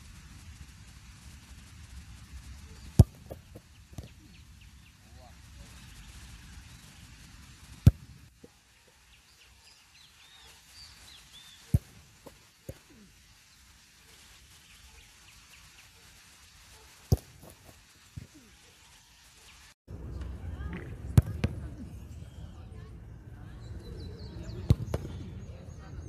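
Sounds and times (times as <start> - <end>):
birds chirping faintly: 2.3 - 26.0
football kick thuds: 2.9 - 4.2, 7.8 - 8.2, 11.7 - 12.8, 17.1 - 18.3, 24.6 - 25.2.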